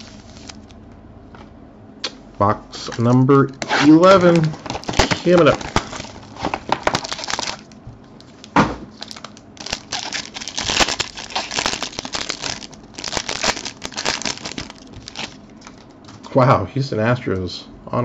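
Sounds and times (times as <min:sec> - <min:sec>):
foil pack crinkling: 0:00.0 - 0:00.7, 0:04.2 - 0:15.9.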